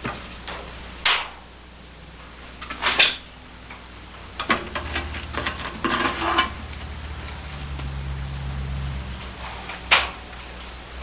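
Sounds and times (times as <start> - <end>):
metal clanking in iron stove: 2.6 - 6.9.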